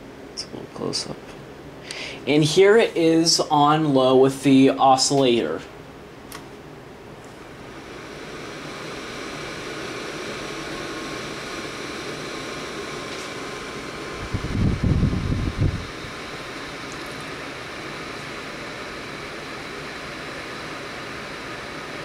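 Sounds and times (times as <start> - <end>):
fan whirring hiss: 0.0 - 22.0
wind buffeting microphone: 14.2 - 15.9.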